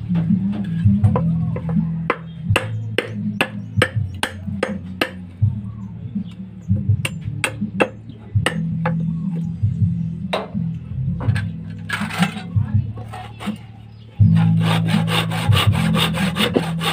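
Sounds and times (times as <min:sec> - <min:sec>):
background music: 0:00.0 - 0:16.9
knife chopping wood: 0:01.0 - 0:05.2, 0:07.0 - 0:09.0.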